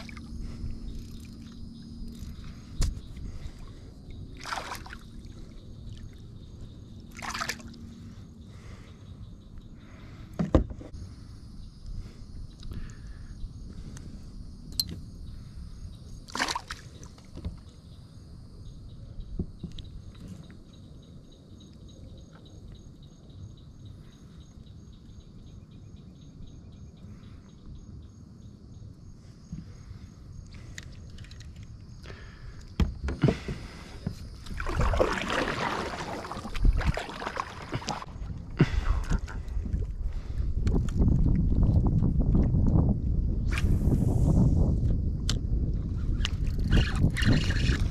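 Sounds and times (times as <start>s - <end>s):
water lapping: 0.0s - 6.2s, 7.1s - 8.8s, 33.4s - 40.4s
fish splashing into water: 4.4s - 5.1s, 16.3s - 16.9s, 34.5s - 38.1s
paddle strokes splashing: 34.4s - 39.4s.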